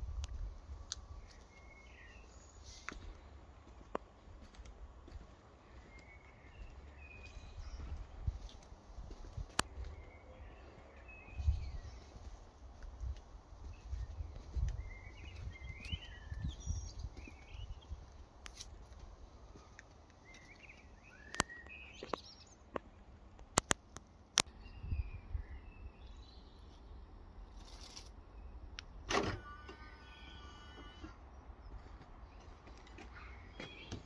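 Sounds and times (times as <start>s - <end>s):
wind rumbling on microphone: 0.0s - 1.4s, 7.4s - 18.2s, 24.6s - 25.9s
small birds chirping: 5.0s - 28.6s, 31.3s - 34.0s
sharp clicks: 23.4s - 24.6s.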